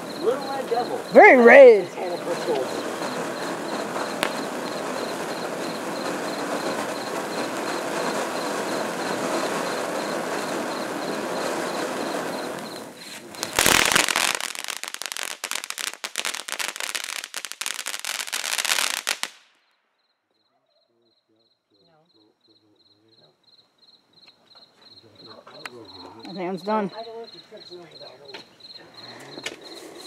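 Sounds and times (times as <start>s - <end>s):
firework fountain hissing: 0.0s - 19.5s, 25.2s - 30.0s
fast firework crackling: 0.0s - 19.6s
loud firework burst: 0.0s - 19.6s.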